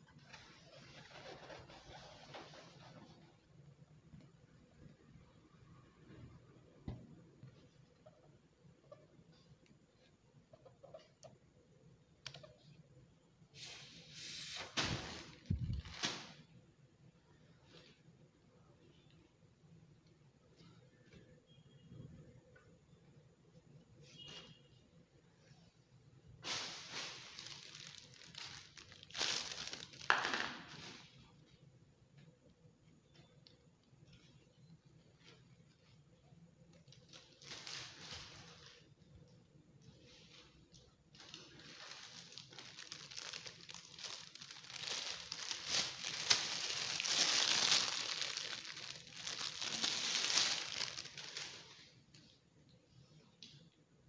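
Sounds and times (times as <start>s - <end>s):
balloons crinkling and rustling: 0.1s - 3.6s, 13.6s - 16.6s, 26.4s - 31.6s, 34.0s - 52.4s.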